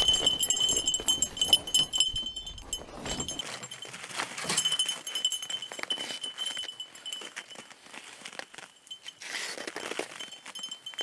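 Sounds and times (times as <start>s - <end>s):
dog collar jingling: 0.0s - 7.7s
thin ringing tone: 0.0s - 7.8s, 8.6s - 11.0s.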